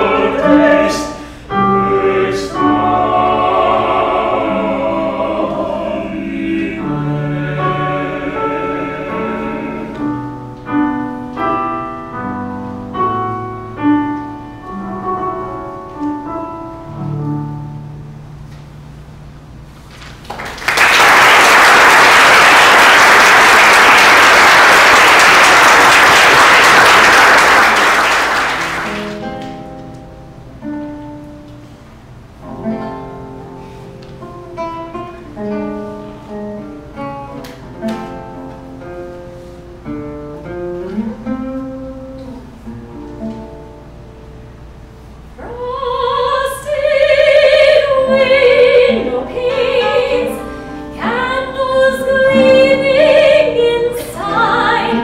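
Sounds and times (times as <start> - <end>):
classical guitar playing: 0.0 - 19.6, 28.6 - 55.0
audience applause: 20.0 - 29.2
woman singing classical style: 45.4 - 55.0.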